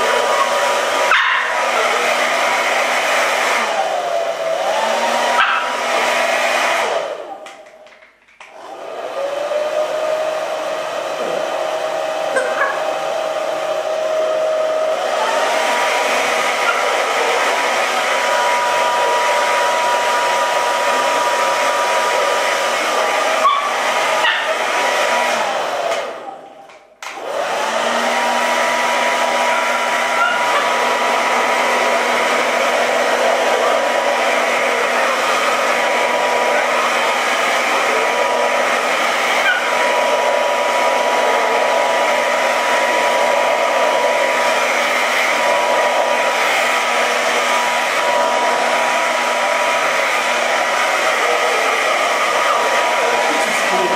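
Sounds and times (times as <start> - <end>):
hair dryer blowing: 0.0 - 53.9.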